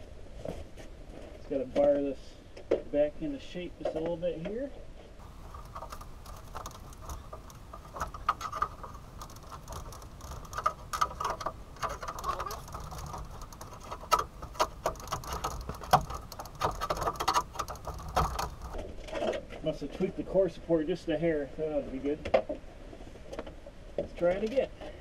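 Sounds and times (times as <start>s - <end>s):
metal scraping and creaking: 5.2s - 19.5s.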